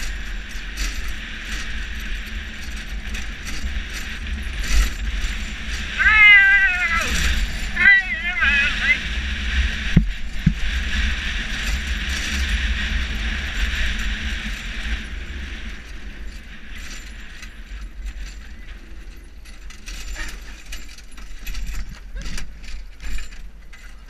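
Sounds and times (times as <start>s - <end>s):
cart wheels rattling and knocking: 0.0s - 24.0s
wind rumbling on microphone: 0.0s - 24.0s.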